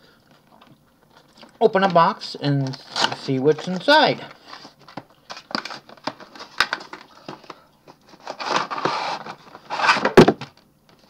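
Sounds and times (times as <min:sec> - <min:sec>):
cardboard scraping and rubbing: 0:08.1 - 0:10.2.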